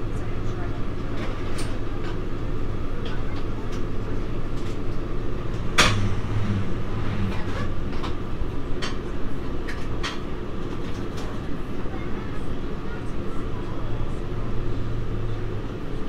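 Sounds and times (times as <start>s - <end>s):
train drone and rumble: 0.0s - 16.0s
wheels clicking over track: 1.1s - 11.6s.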